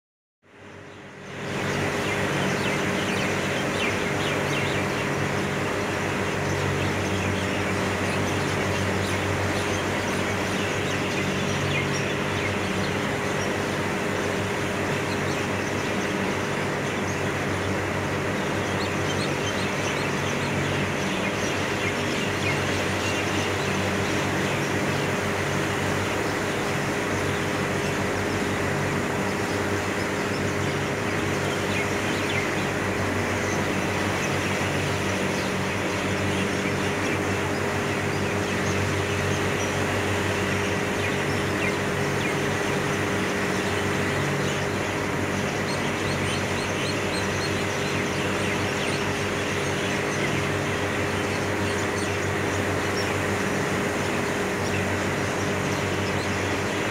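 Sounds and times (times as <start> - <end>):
steady mechanical hum: 0.4 - 56.9
herons calling: 0.6 - 56.9.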